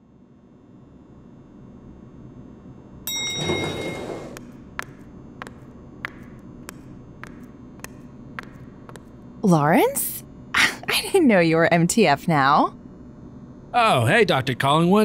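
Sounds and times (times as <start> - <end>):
door opening with metallic clank: 3.2 - 4.4.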